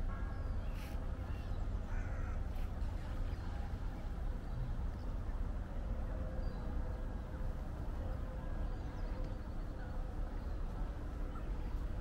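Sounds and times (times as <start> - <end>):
bird harsh crow-like call: 1.3 - 2.5.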